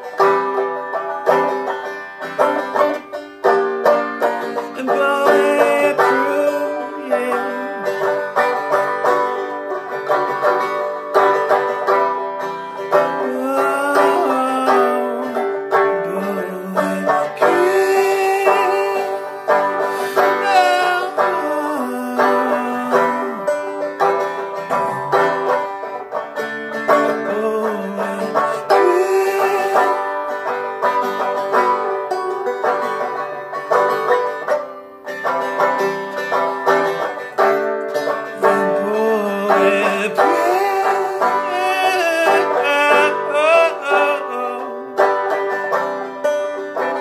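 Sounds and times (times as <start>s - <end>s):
banjo strumming: 0.0s - 47.0s
man singing: 4.6s - 8.2s, 13.0s - 23.7s, 24.7s - 25.3s, 26.9s - 30.1s, 38.1s - 45.1s.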